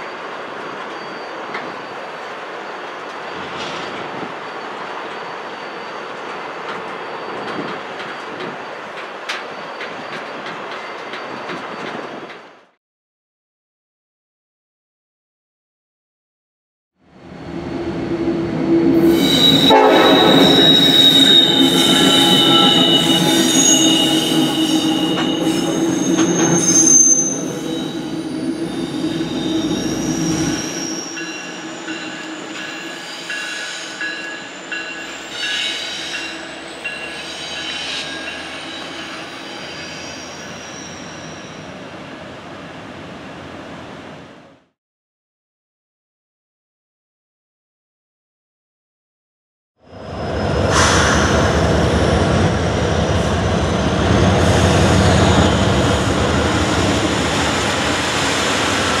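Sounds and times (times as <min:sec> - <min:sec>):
wheel flange squeal: 0:00.9 - 0:02.1, 0:19.0 - 0:41.6.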